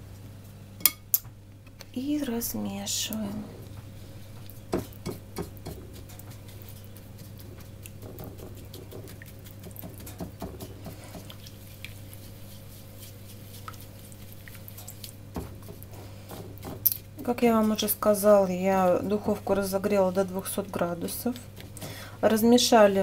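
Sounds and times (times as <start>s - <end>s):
brush scraping ceramic plate: 4.8s - 17.9s.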